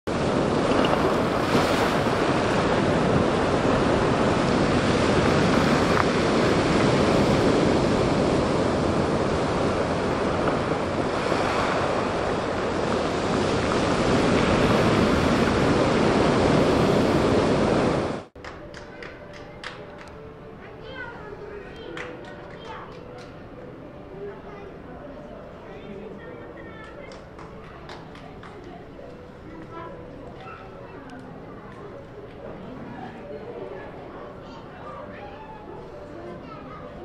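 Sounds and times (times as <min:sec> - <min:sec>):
ocean surf on pebble beach: 0:00.1 - 0:18.3.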